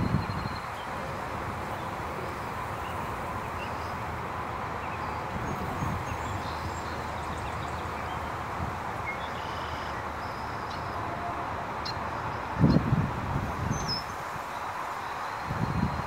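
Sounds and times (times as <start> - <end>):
wind buffeting microphone: 0.0 - 2.0, 12.4 - 14.4, 15.4 - 16.0
wind rustling through grass: 0.0 - 16.0.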